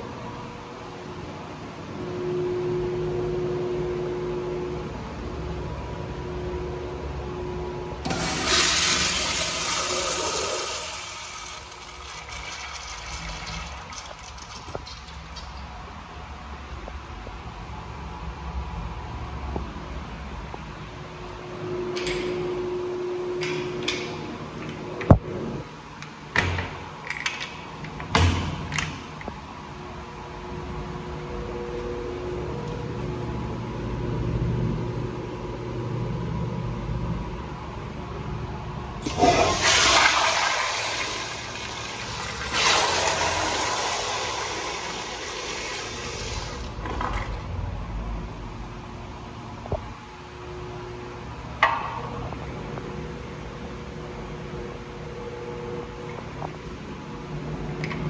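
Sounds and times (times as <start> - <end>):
toilet flushing: 8.0 - 15.8, 39.0 - 47.5.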